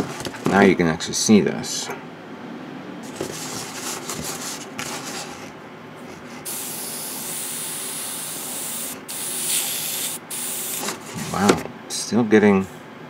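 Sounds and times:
airbrush spraying hiss: 6.5 - 10.9.

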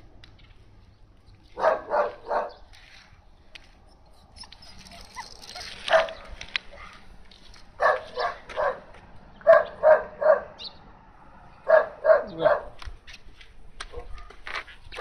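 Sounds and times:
dog barking high-pitched: 1.6 - 2.6, 5.1 - 6.3, 7.8 - 10.6, 11.7 - 12.8.

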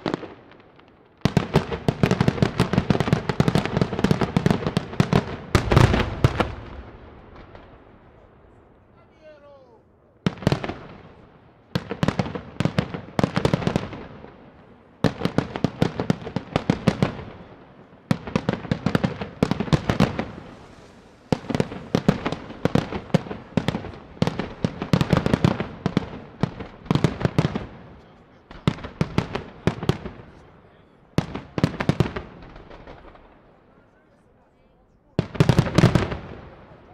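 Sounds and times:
firework shells bursting: 1.6 - 7.8, 18.1 - 27.7.

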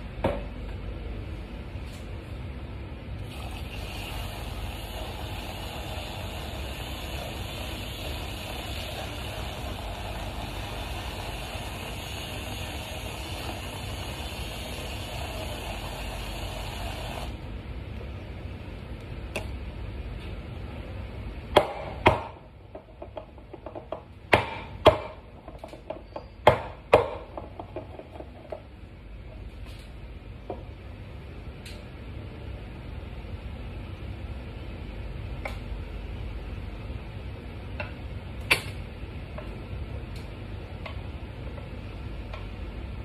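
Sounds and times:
milk frother whirring: 3.2 - 17.5.

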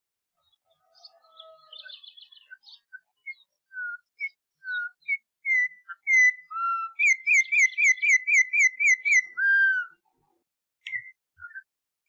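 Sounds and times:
songbird singing whistled notes: 0.8 - 10.0, 10.8 - 11.7.

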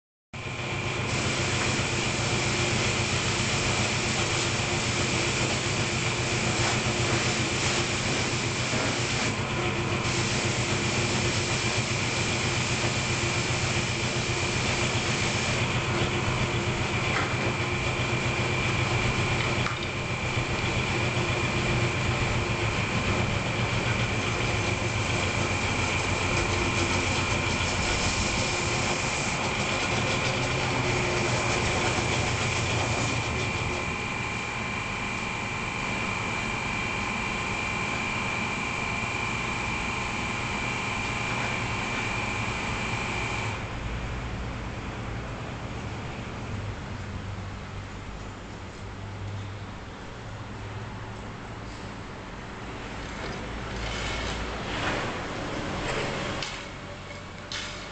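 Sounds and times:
pressure washer motor humming: 0.4 - 43.7
water spray hissing on concrete: 1.1 - 9.4, 10.0 - 15.8, 24.0 - 33.1.

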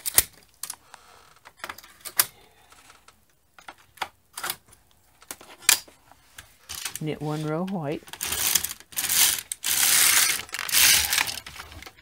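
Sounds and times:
knitting machine needles clicking: 6.7 - 11.5.

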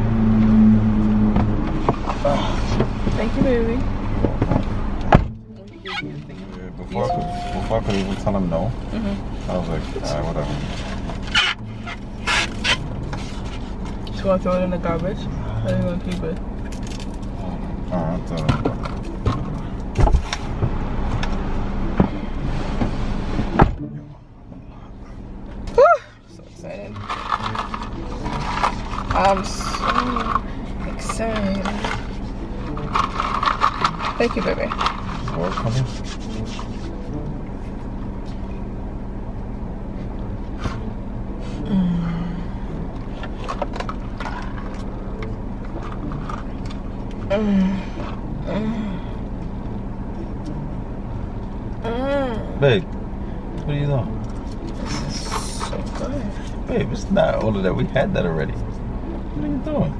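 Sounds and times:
car cabin hum: 0.0 - 59.9
woman humming mmm: 41.6 - 42.6.

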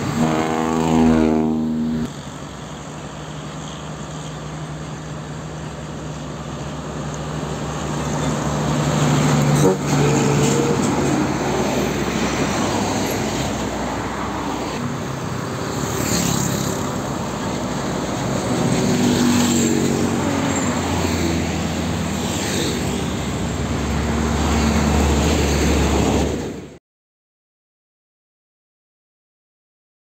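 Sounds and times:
cars and motorcycles passing: 0.0 - 26.7
diesel trucks droning: 0.0 - 26.7
vehicle sweeping past: 7.2 - 26.5.

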